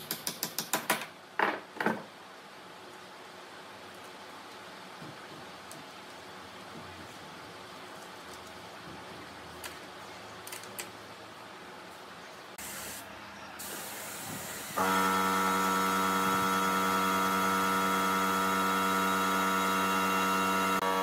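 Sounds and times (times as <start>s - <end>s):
spray gun hissing: 12.6s - 13.0s, 13.6s - 21.0s.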